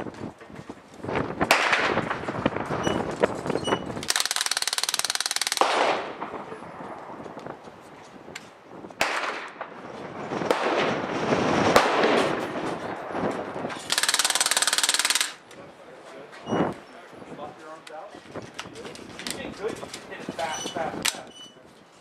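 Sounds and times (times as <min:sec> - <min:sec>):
bb gun firing rapid burst: 0:04.0 - 0:06.1, 0:13.9 - 0:15.4
sharp gun cracks: 0:04.0 - 0:06.3, 0:09.0 - 0:09.7, 0:13.8 - 0:15.4.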